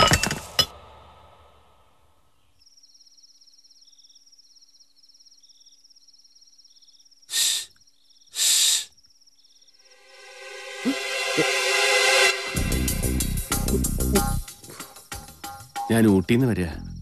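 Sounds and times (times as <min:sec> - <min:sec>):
crickets chirping: 0:00.7 - 0:17.0
man breathing out heavily: 0:08.3 - 0:08.9.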